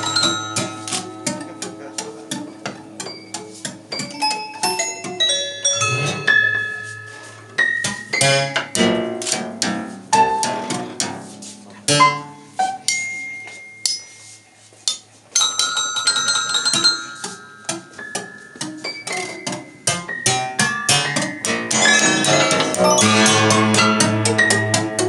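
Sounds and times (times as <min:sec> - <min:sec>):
high bell-like tones: 0:04.2 - 0:07.5, 0:12.0 - 0:14.3, 0:21.7 - 0:23.9.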